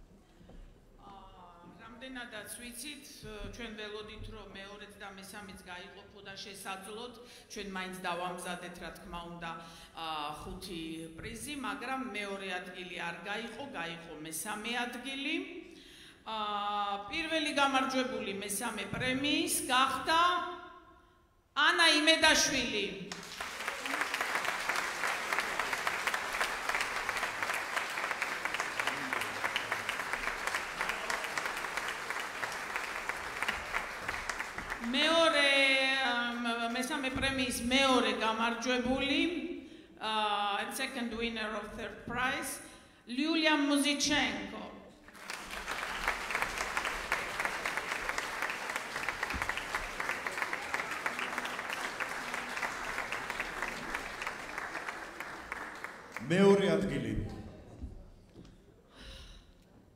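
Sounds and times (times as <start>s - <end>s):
audience applauding: 23.1s - 35.0s, 45.1s - 57.0s.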